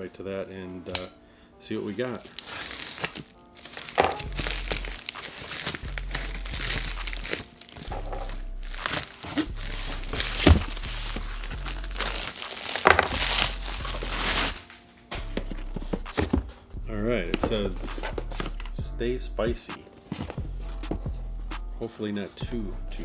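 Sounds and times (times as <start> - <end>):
plastic bag rustling and crinkling: 1.8 - 16.0.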